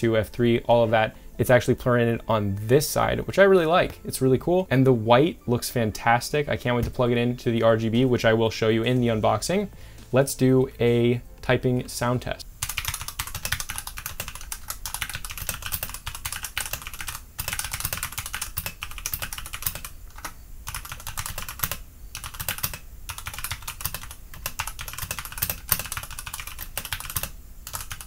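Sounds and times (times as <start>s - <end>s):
fast typing on mechanical keyboard: 12.6s - 28.0s.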